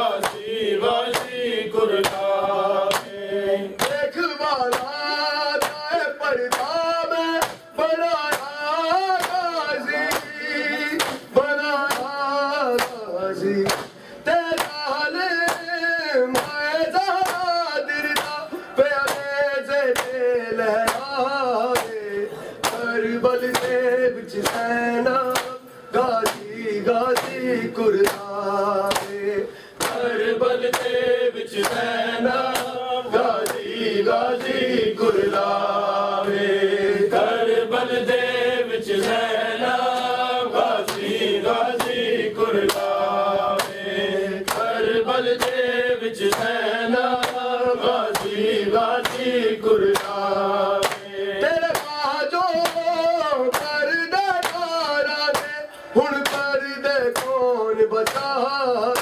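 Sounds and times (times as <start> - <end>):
men chanting a lament: 0.0 - 59.0
hands slapping chests: 0.2 - 1.4, 2.0 - 3.2, 3.8 - 4.1, 4.7 - 5.9, 6.5 - 6.8, 7.4 - 7.7, 8.3 - 13.0, 13.6 - 14.8, 15.4 - 20.2, 20.8 - 22.0, 22.6 - 29.2, 29.8 - 34.6, 39.9 - 57.4, 58.0 - 58.4.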